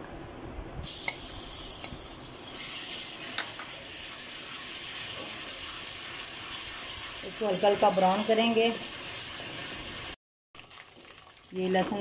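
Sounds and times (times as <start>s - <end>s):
paste sizzling in hot oil: 0.8s - 12.0s
wooden spatula scraping wok: 3.2s - 10.2s.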